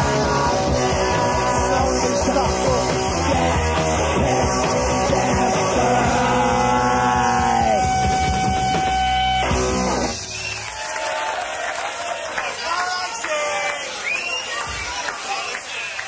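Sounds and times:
punk rock band playing: 0.0 - 10.5.

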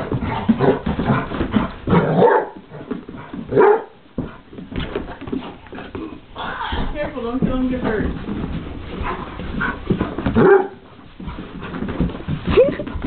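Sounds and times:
scuffling bodies on floor: 0.0 - 13.0
dog barking: 1.9 - 2.6, 3.5 - 4.0, 10.4 - 10.8.

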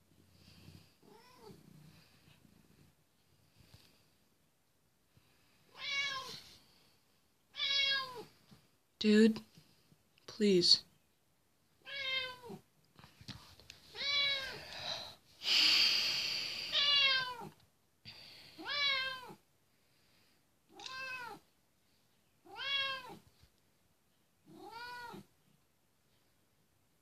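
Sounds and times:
cat meowing: 5.7 - 6.4, 7.5 - 8.3, 11.8 - 12.6, 13.9 - 14.6, 16.7 - 17.6, 18.6 - 19.4, 20.7 - 21.4, 22.4 - 23.2, 24.5 - 25.3
hiss-like noise: 14.8 - 17.0.

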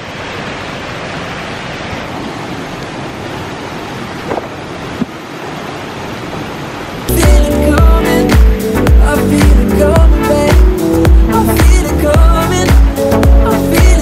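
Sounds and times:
river rushing over rocks: 0.0 - 14.0
background music with beat: 7.1 - 14.0.

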